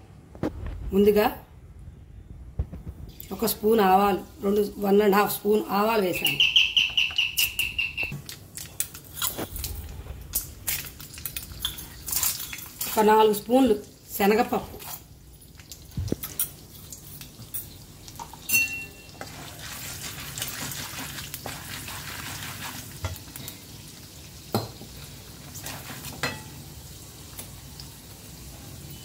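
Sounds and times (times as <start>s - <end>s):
seeds sizzling in oil: 10.4s - 29.0s.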